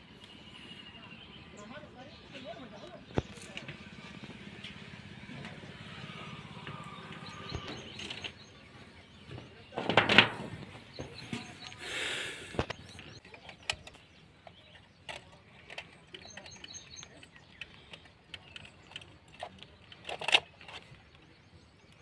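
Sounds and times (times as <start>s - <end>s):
cables rustling and clicking: 12.5s - 21.2s.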